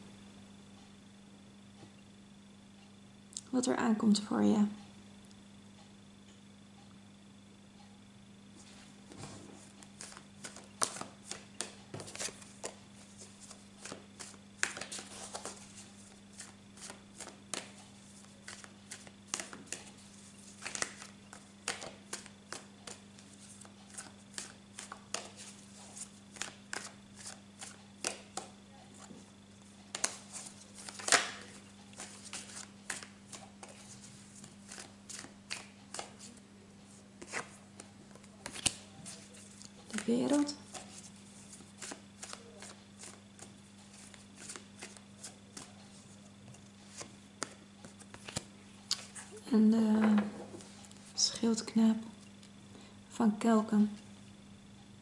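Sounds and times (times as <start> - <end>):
cards being shuffled: 8.6 - 29.2, 29.9 - 46.2, 46.8 - 49.4.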